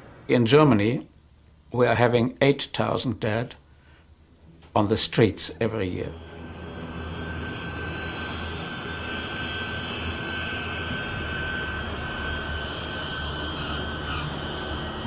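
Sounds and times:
airliner engines running: 0:00.0 - 0:00.3, 0:04.6 - 0:15.0.

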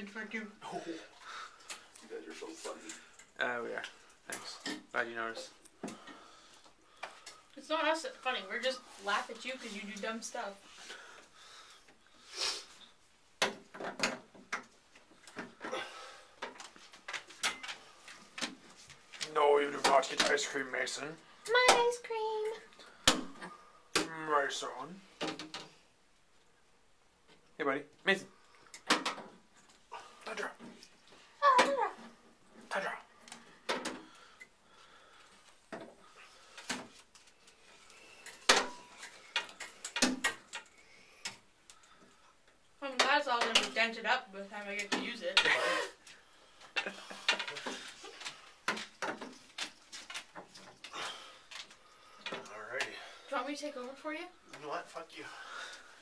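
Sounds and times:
brief hiss: 0:12.2 - 0:12.8.

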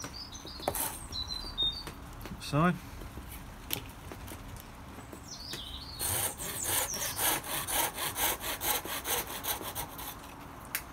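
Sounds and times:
hand saw cutting wood: 0:06.0 - 0:10.3.

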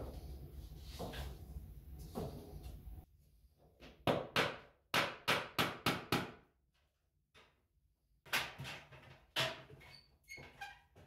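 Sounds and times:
hammer striking a nail: 0:04.0 - 0:06.5.

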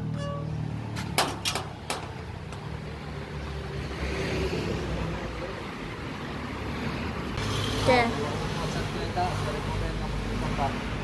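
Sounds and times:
road traffic rumble: 0:00.0 - 0:11.0
knocks on steel gate: 0:01.0 - 0:02.2.

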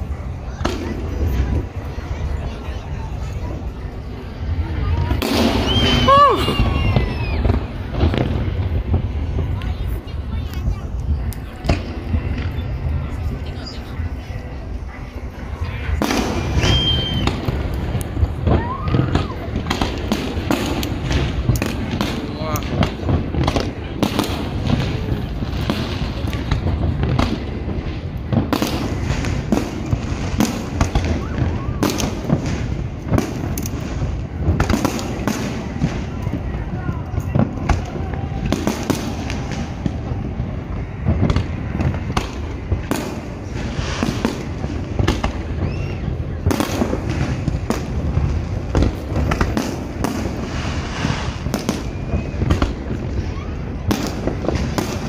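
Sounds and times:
low rumble: 0:00.0 - 0:30.4
fireworks bangs: 0:00.0 - 0:55.0.

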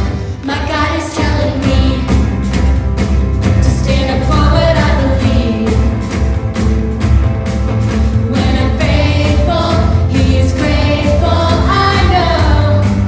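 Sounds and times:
children singing: 0:00.0 - 0:02.2, 0:08.3 - 0:13.0
backing track with bass and drums: 0:00.0 - 0:13.0.

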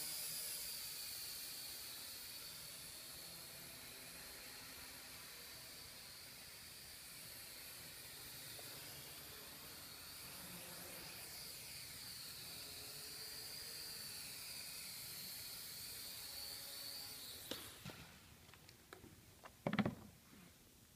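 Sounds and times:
quadcopter motors whining: 0:00.0 - 0:18.3
clicks on wooden floor: 0:18.5 - 0:20.1.

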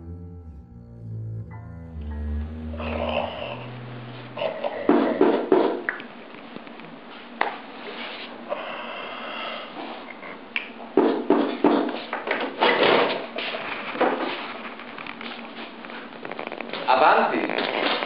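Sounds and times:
knocks and taps at a desk: 0:11.0 - 0:12.5.

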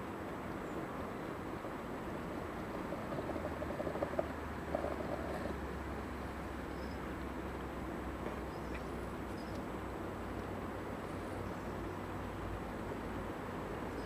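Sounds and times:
stream flowing over rocks: 0:00.0 - 0:14.0
faint high chirps: 0:06.7 - 0:07.0.

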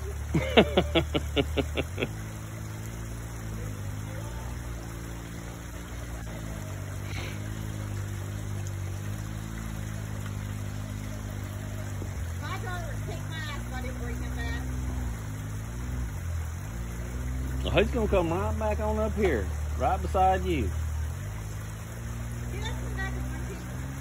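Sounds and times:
vehicle engine running: 0:00.0 - 0:24.0
burst of laughter: 0:00.2 - 0:02.2.

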